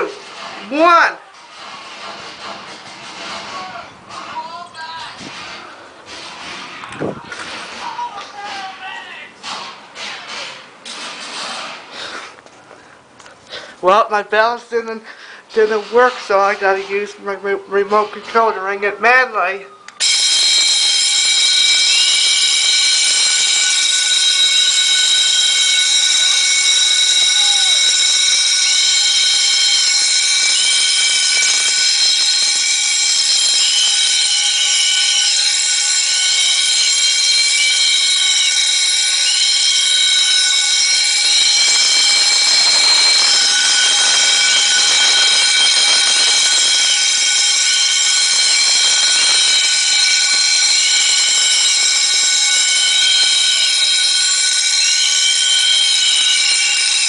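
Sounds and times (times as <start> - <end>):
fire alarm bells ringing: 13.5 - 57.0.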